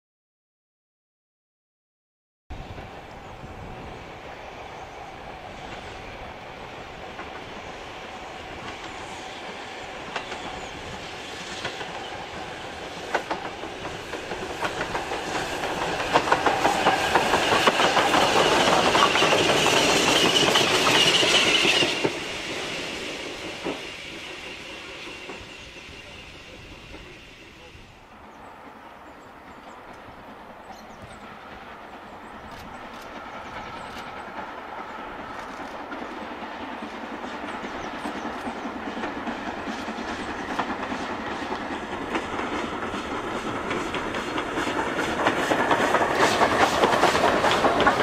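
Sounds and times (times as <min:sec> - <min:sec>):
steam locomotive exhaust: 0:02.8 - 0:30.5, 0:31.1 - 0:48.0.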